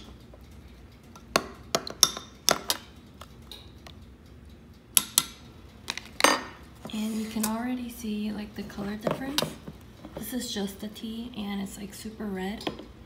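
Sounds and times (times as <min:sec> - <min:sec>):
metal spoon clinking on glass: 0:01.8 - 0:02.8.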